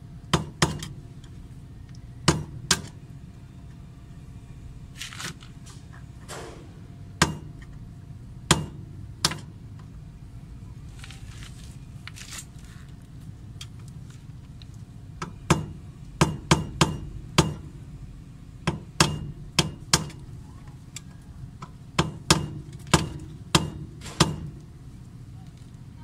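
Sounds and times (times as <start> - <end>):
hammer striking metal: 6.3 - 7.6, 8.5 - 9.5, 15.2 - 17.7, 18.6 - 20.2, 22.0 - 24.6.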